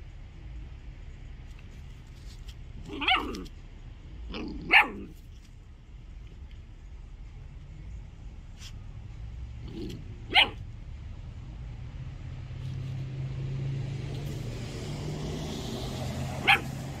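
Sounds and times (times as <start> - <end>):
puppy barking: 2.8 - 3.6, 4.3 - 5.2, 9.6 - 10.7, 16.4 - 17.0.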